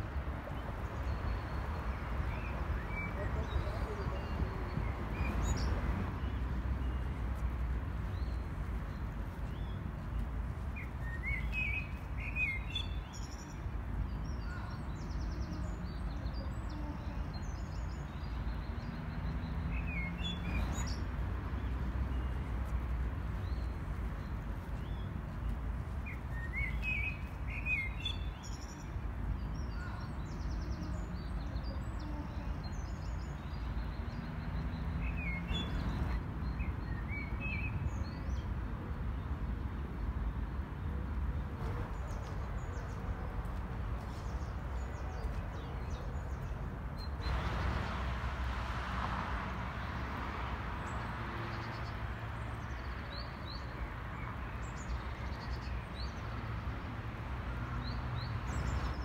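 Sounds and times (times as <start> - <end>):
small birds chirping: 0.0 - 38.5.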